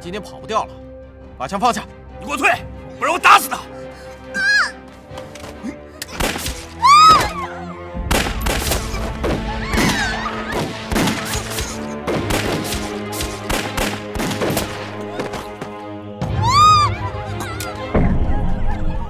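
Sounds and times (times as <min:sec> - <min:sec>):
dramatic film score: 0:00.0 - 0:19.0
woman screaming: 0:04.3 - 0:04.8, 0:06.8 - 0:07.8, 0:08.9 - 0:10.5, 0:16.4 - 0:17.1
rifle shots: 0:08.0 - 0:09.4, 0:10.5 - 0:15.4.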